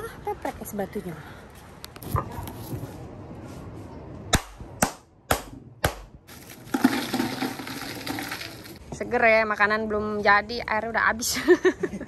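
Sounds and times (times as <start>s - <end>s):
crushed ice clattering: 6.3s - 8.8s
ice cubes being smashed: 6.3s - 8.8s.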